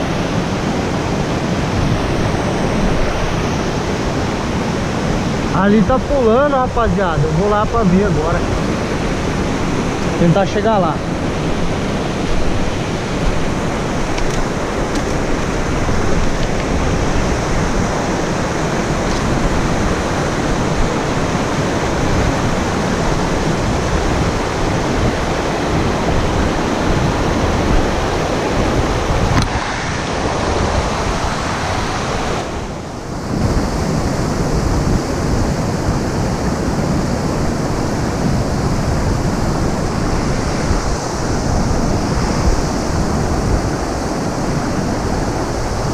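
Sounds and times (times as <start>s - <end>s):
stream rapids rushing: 0.0s - 45.9s.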